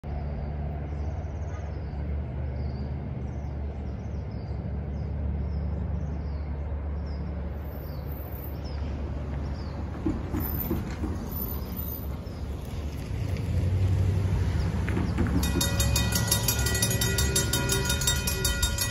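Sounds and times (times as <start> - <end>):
low engine rumble: 0.0 - 18.9
van driving past: 0.1 - 18.9.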